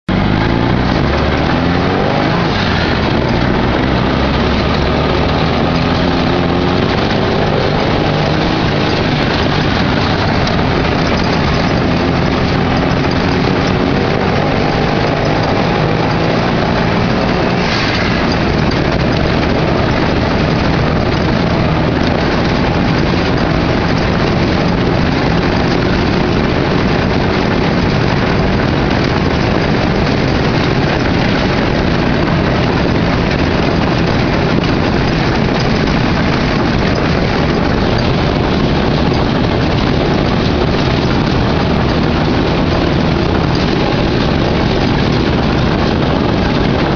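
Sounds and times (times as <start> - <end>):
off-road vehicle engine running: 0.0 - 46.9.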